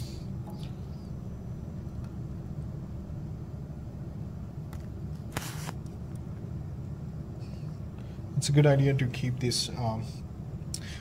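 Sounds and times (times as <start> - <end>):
low background rumble: 0.0 - 11.0
short hiss burst: 5.3 - 5.8.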